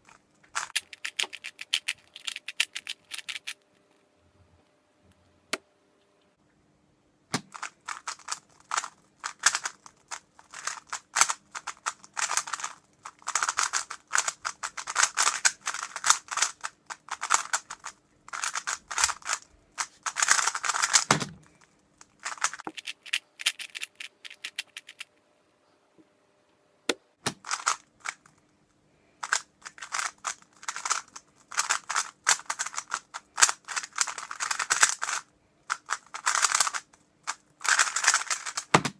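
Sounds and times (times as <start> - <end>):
puzzle cube clicking: 0.6 - 3.6, 7.4 - 21.3, 22.2 - 25.1, 27.3 - 28.2, 29.2 - 38.8.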